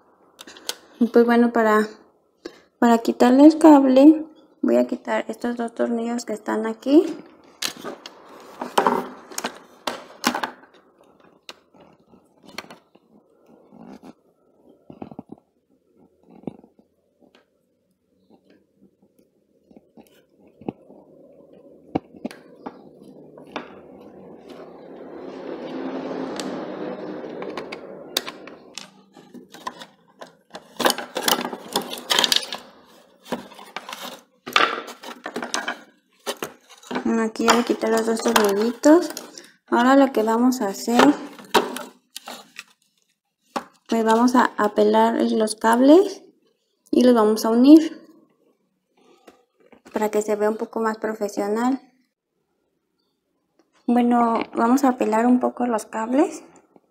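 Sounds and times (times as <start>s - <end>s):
tools clattering on wooden table: 7.6s - 10.7s, 27.4s - 39.4s.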